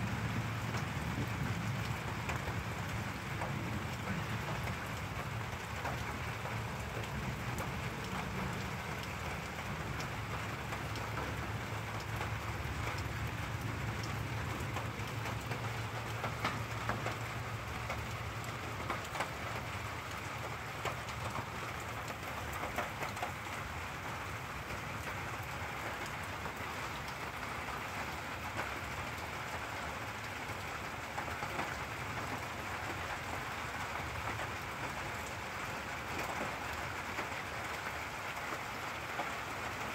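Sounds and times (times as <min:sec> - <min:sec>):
low rumble of thunder: 0:00.0 - 0:10.6
steady rain: 0:00.0 - 0:39.9
water drips ticking: 0:00.1 - 0:39.9.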